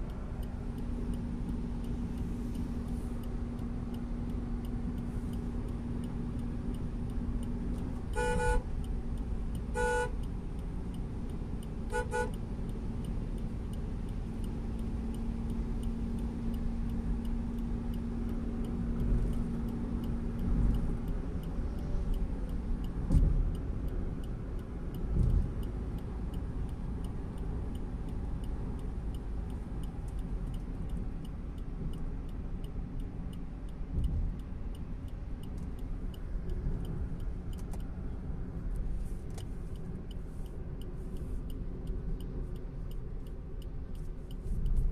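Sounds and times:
car cabin road and engine rumble: 0:00.0 - 0:44.9
vehicle horn honking: 0:08.2 - 0:08.6, 0:09.8 - 0:10.1, 0:11.9 - 0:12.4.

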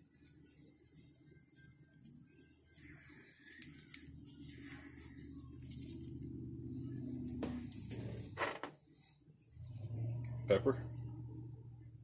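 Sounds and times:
plastic packet crinkling: 0:00.0 - 0:06.2.

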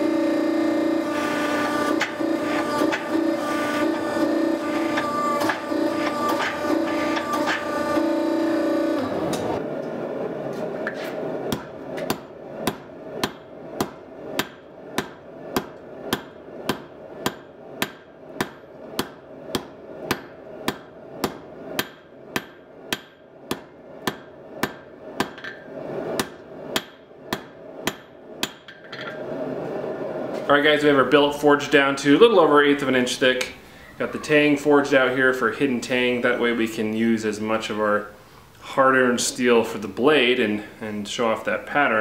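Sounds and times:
hammer striking steel on anvil: 0:11.5 - 0:29.1.

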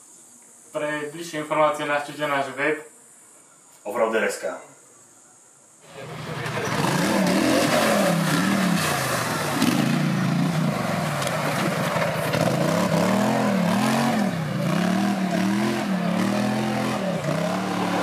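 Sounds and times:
quad engine revving: 0:05.9 - 0:18.0.

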